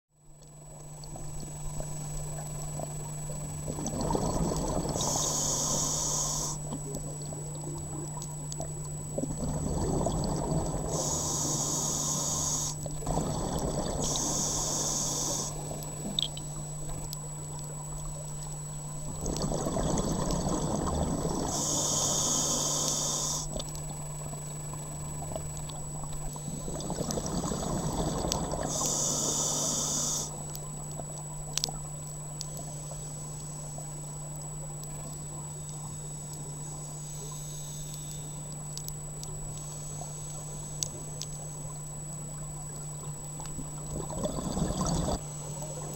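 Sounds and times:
steady low hum: 0.1s - 45.9s
exhaled bubbles: 1.1s - 6.0s, 6.7s - 16.7s, 19.0s - 22.2s, 24.3s - 29.4s, 42.2s - 45.2s
regulator breathing hiss: 4.9s - 6.7s, 10.8s - 12.9s, 13.8s - 15.7s, 21.4s - 23.6s, 28.6s - 30.4s, 36.9s - 38.5s.

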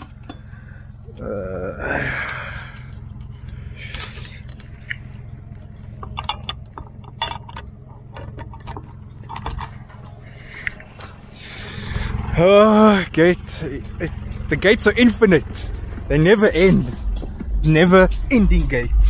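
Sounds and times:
loose gear rattling: 0.0s - 11.6s
vehicle low rumble: 0.0s - 19.0s.

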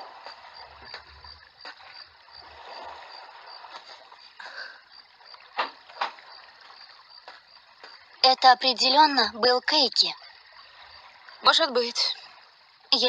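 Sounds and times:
water lapping against stone: 0.0s - 9.3s.

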